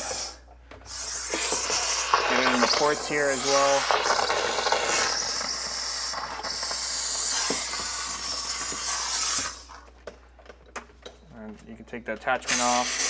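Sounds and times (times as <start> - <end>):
steam cleaner hissing: 0.0 - 9.8, 12.4 - 13.0.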